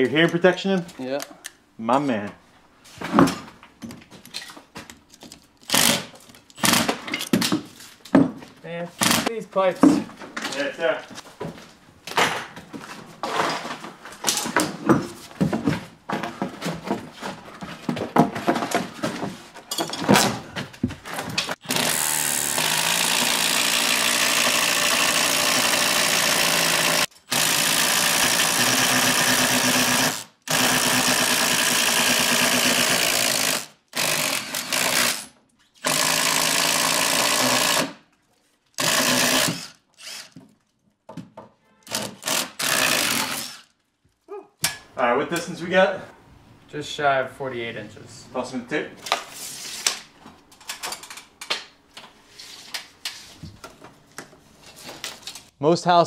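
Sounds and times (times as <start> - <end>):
power drill running: 9.0 - 9.3, 21.6 - 35.2, 35.8 - 38.0, 38.8 - 40.4, 41.9 - 43.7.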